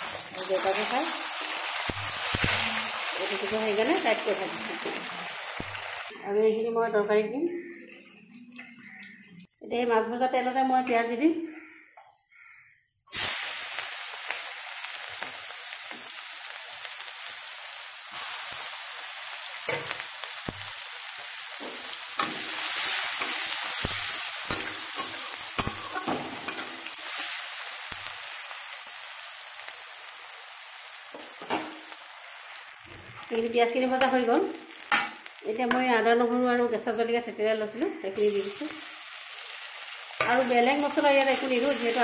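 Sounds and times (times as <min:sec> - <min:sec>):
onions sizzling in hot oil: 0:00.0 - 0:06.1, 0:13.1 - 0:37.2, 0:38.0 - 0:42.0
spatula scraping a wok: 0:21.6 - 0:27.5.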